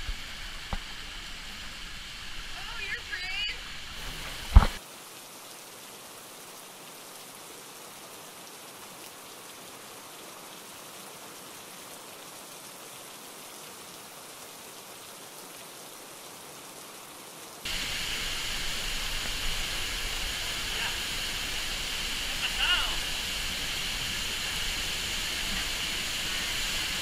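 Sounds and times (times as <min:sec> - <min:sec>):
waterfall hissing: 0:00.0 - 0:04.9, 0:17.6 - 0:27.0.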